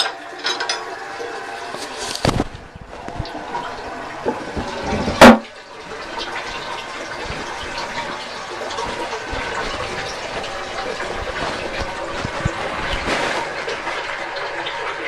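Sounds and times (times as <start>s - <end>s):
toilet flushing: 0.0s - 15.0s.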